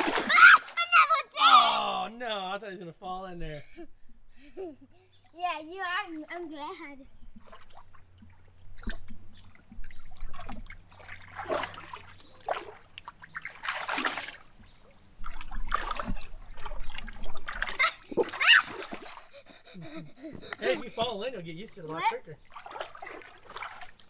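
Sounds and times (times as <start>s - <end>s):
child splashing in water: 0.0s - 2.0s, 7.4s - 14.6s, 15.2s - 21.0s, 22.4s - 24.0s.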